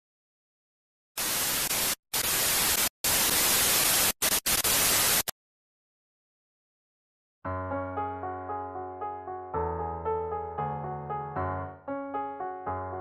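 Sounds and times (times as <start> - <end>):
tv static hiss bursts: 1.2 - 5.3.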